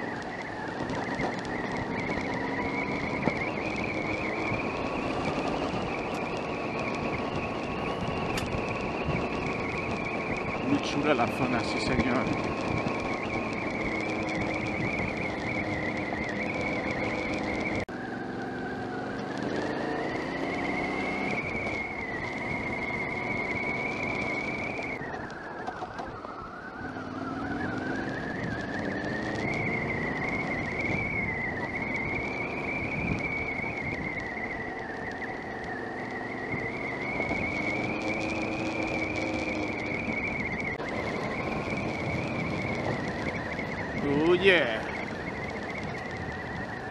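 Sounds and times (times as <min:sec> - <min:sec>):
motorcycle engine revving: 0:00.0 - 0:46.9.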